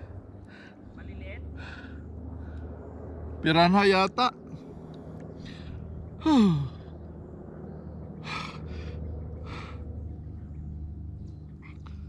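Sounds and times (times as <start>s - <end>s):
person breathing hard: 0.0s - 0.9s, 1.6s - 2.8s, 5.4s - 6.9s, 8.2s - 9.9s
steady low hum: 0.0s - 12.0s.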